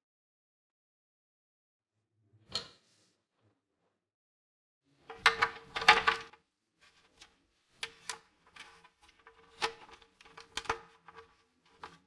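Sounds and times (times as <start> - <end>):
plastic parts clicking and knocking: 5.0 - 6.4, 7.8 - 12.0.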